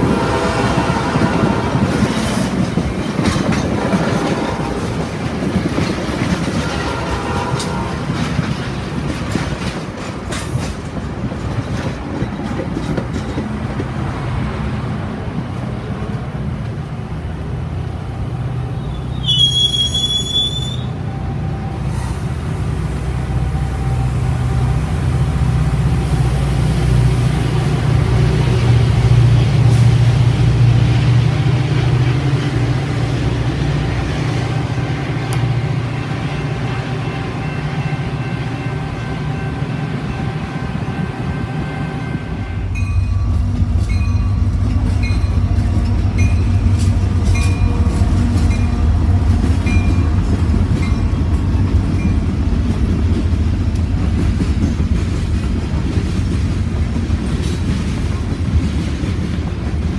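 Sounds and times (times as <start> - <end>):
diesel locomotive drone: 0.0 - 59.9
train cars rolling past: 0.0 - 59.9
high-pitched wheel squeal: 18.8 - 22.2.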